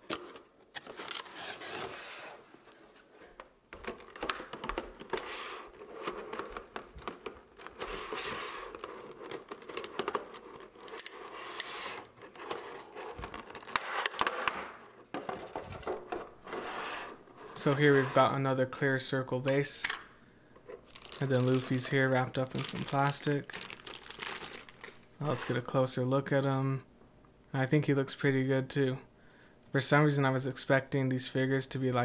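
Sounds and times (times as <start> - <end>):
plastic packaging crinkling: 3.7 - 14.8, 20.8 - 25.4.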